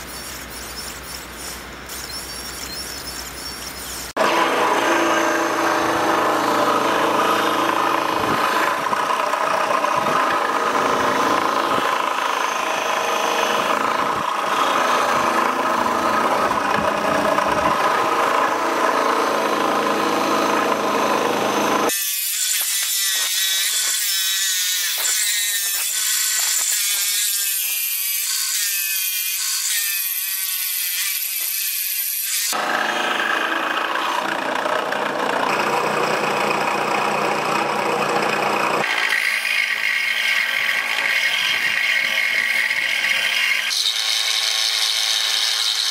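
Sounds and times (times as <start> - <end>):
wood scraping on sanding wheel: 0.0 - 12.3
sanding wheel running: 0.0 - 22.0, 32.4 - 45.9.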